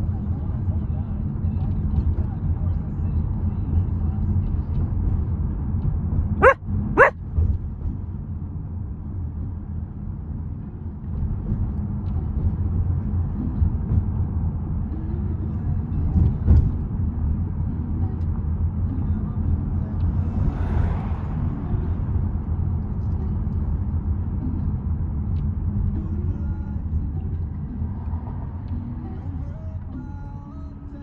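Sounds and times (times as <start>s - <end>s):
puppy barking: 6.4s - 7.2s.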